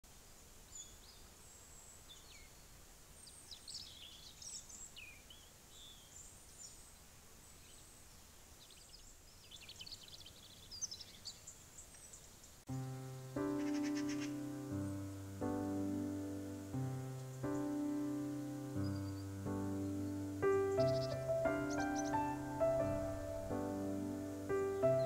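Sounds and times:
low steady background hiss: 0:00.0 - 0:25.0
faint birdsong: 0:00.1 - 0:25.0.

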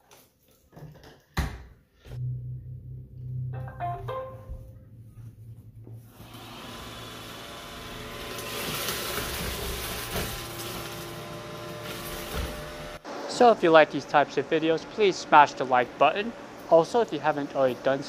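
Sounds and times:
low hum: 0:02.1 - 0:07.0.

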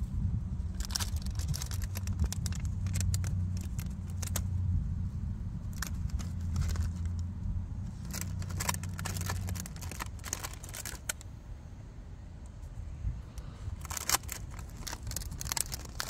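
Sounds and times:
steady low hum: 0:00.0 - 0:16.0
plastic bags crinkling: 0:00.7 - 0:04.5, 0:05.7 - 0:07.2, 0:07.9 - 0:11.2, 0:13.7 - 0:16.0.

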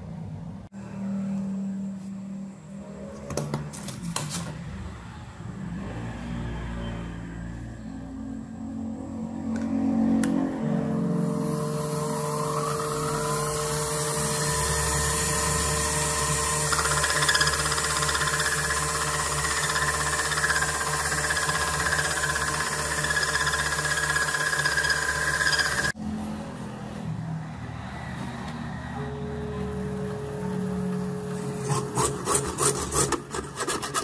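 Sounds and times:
lathe motor whirring: 0:11.0 - 0:26.0.

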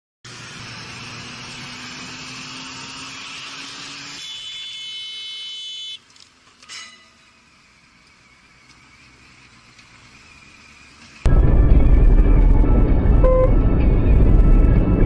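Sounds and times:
motorcycle engine humming: 0:07.3 - 0:15.0
high-pitched buzzing tone: 0:11.3 - 0:14.7
wind noise: 0:11.3 - 0:15.0.

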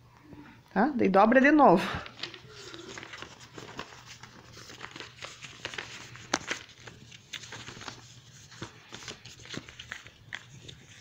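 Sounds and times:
paper crinkling while folded: 0:02.0 - 0:11.0.

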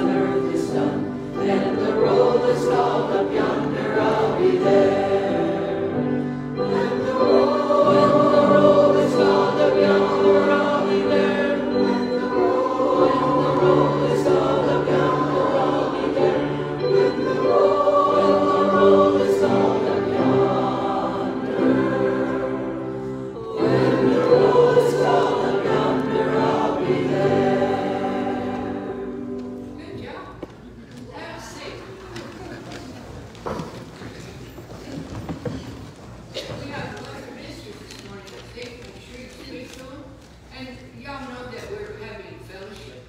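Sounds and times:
congregation singing a hymn: 0:00.0 - 0:30.0.

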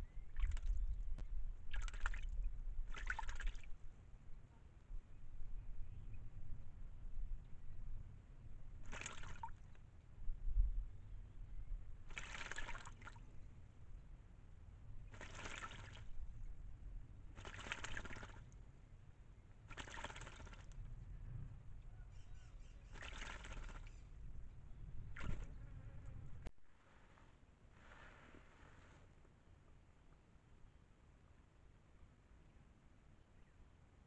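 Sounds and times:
bird splashing in water: 0:00.4 - 0:00.8, 0:01.7 - 0:03.8, 0:08.8 - 0:09.7, 0:12.1 - 0:13.3, 0:15.0 - 0:16.2, 0:17.3 - 0:18.6, 0:19.6 - 0:20.8, 0:22.8 - 0:24.1, 0:25.1 - 0:25.6.

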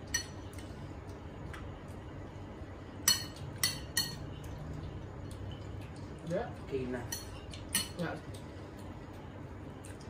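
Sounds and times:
spoon clinking against dishes: 0:03.0 - 0:04.6, 0:07.0 - 0:08.1.

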